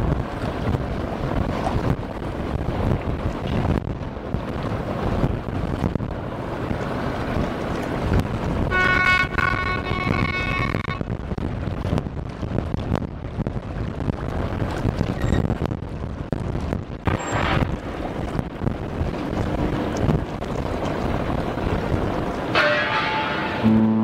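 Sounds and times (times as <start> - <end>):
water rushing around ship bow: 0.0 - 24.0
wind buffeting microphone: 0.0 - 24.0
steady high-pitched tone: 22.6 - 24.0.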